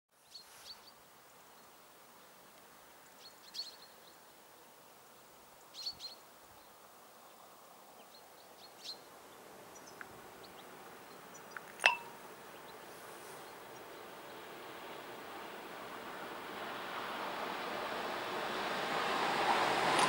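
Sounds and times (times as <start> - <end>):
small birds chirping: 0.2 - 15.2.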